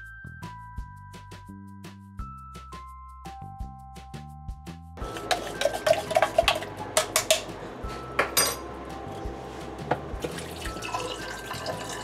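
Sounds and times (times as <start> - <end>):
liquid sloshing: 5.0 - 7.4, 10.2 - 12.0
cup clinking and knocking: 8.2 - 8.7.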